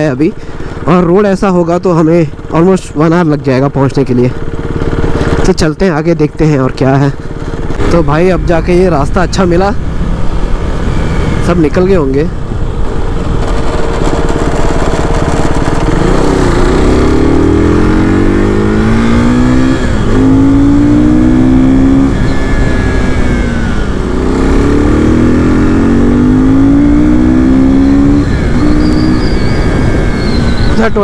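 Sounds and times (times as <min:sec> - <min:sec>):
motorcycle engine accelerating: 0:00.0 - 0:31.0
wind rush: 0:07.2 - 0:21.2, 0:27.0 - 0:31.0.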